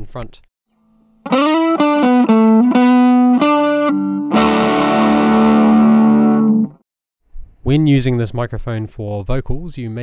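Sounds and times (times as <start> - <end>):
overdriven electric guitar: 1.2 - 6.8.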